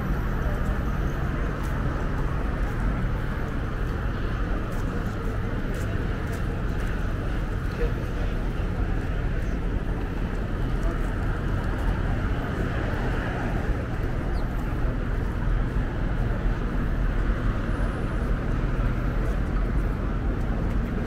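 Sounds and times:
city traffic rumble: 0.0 - 21.0.

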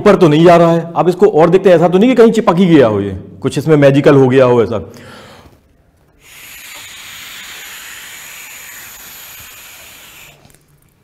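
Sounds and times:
air hissing through straw: 6.2 - 11.0.

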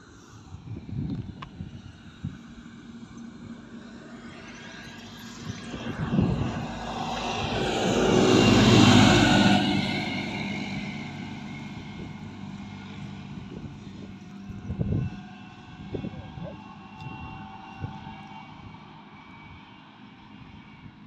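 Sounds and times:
aircraft drone: 0.0 - 21.0
tractor diesel engine: 5.1 - 16.8.

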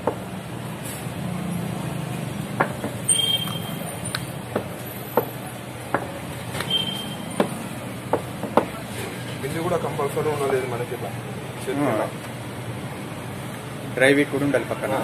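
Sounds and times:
rolling pin knocking on stone: 4.5 - 6.1, 7.4 - 8.8.

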